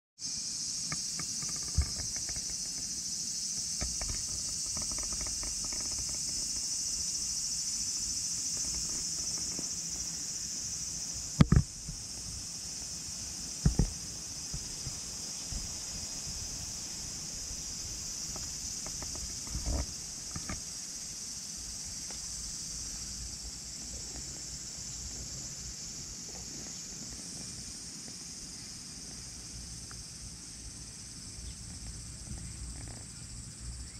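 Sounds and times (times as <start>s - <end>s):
high-pitched insect chorus: 0.2s - 33.9s
knocks against camera: 11.4s - 12.0s, 13.6s - 15.7s.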